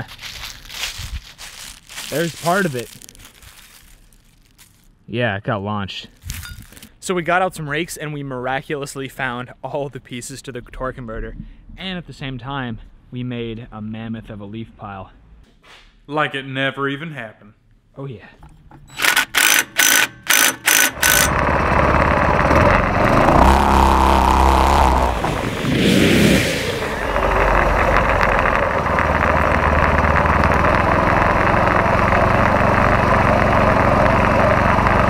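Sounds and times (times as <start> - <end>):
kart ploughing through leaves: 0.0 - 4.9, 20.9 - 35.0
impact driver hammering: 19.0 - 21.6
go-kart engines running hard: 20.9 - 35.0.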